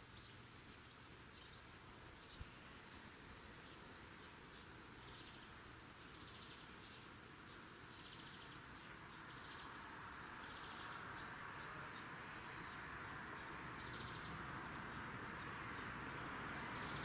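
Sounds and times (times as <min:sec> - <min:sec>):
steady hiss: 0:00.0 - 0:09.2.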